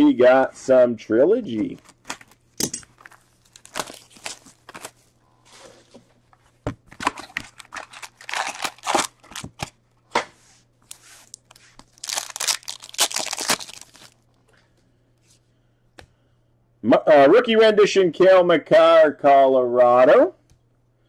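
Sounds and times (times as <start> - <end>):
cardboard and foil ripping: 3.0 - 5.0, 7.3 - 9.5, 10.9 - 14.2.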